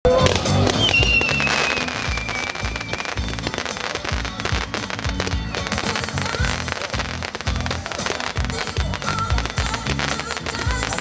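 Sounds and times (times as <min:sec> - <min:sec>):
fireworks popping and crackling: 0:00.1 - 0:11.0
music with steady beat: 0:00.1 - 0:11.0.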